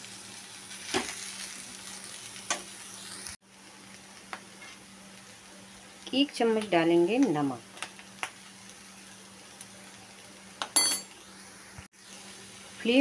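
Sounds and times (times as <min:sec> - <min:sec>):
vegetables sizzling in oil: 0:00.0 - 0:13.0
spoon clinking against pan: 0:10.7 - 0:11.1.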